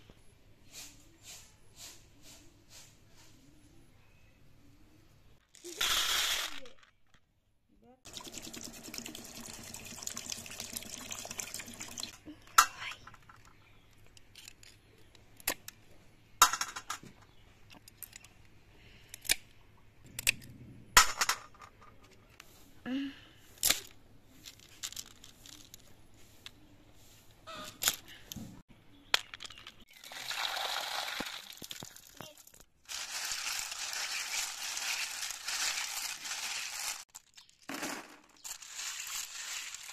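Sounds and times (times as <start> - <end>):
water pouring into steel bowl: 8.1 - 12.2, 30.0 - 31.6.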